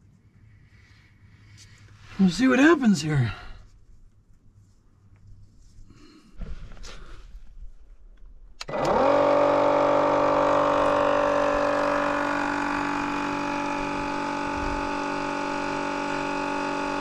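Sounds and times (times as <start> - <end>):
pump switch click: 8.6 - 9.0
pump motor whining: 8.6 - 17.0.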